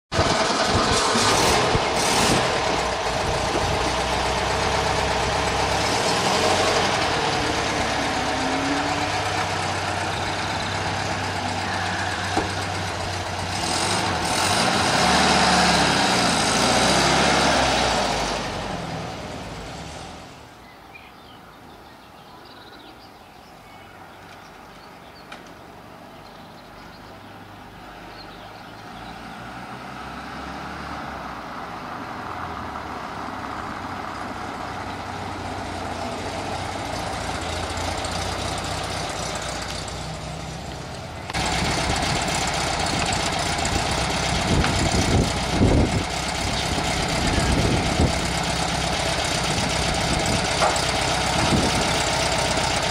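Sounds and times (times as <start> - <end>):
car engine revving: 0.1 - 20.2.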